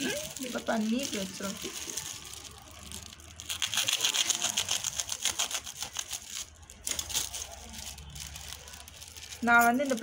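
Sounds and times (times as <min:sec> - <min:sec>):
gift paper crinkling: 0:00.0 - 0:10.0.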